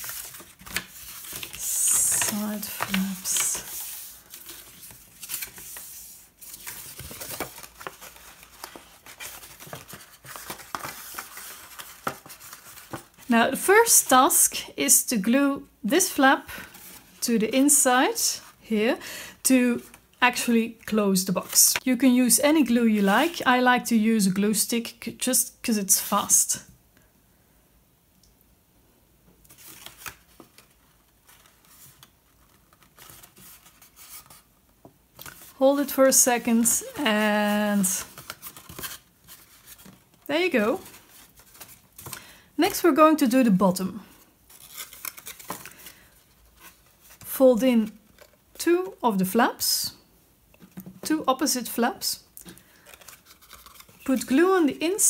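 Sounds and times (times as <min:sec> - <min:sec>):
paper box rustling and clicking: 0:00.0 - 0:13.2, 0:52.5 - 0:54.1
paper crinkling and rustling: 0:00.0 - 0:13.3, 0:29.4 - 0:34.5, 0:35.1 - 0:43.0, 0:44.1 - 0:49.0, 0:52.4 - 0:54.4.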